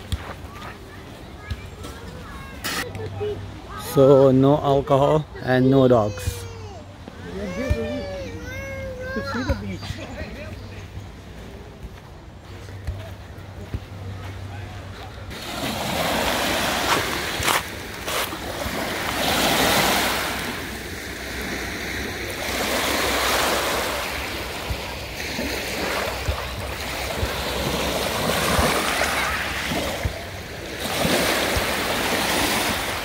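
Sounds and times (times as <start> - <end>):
waves washing onto beach: 15.3 - 33.0.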